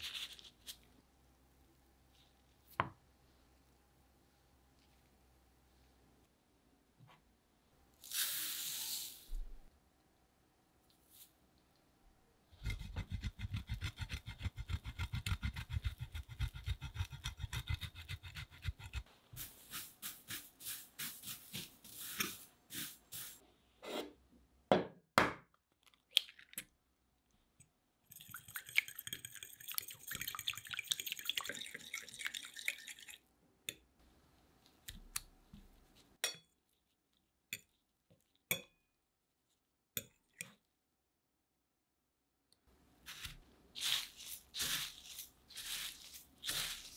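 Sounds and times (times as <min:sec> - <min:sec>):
breadcrumbs stirred on a plate: 0:12.6 - 0:23.3, 0:43.0 - 0:46.9.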